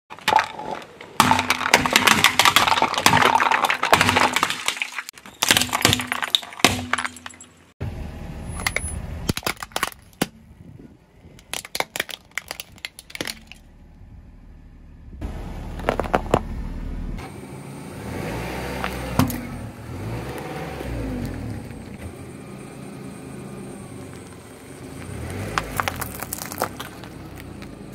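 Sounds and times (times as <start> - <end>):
tyre crushing plastic: 0.1 - 7.2, 11.4 - 13.6, 25.6 - 27.7
low rumble: 13.5 - 17.2.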